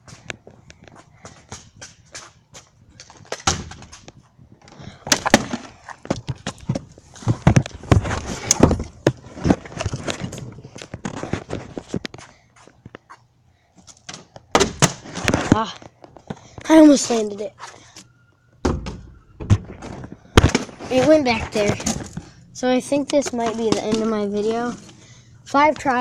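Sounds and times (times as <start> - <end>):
handling noise on microphone: 0.0 - 13.1, 19.6 - 22.4.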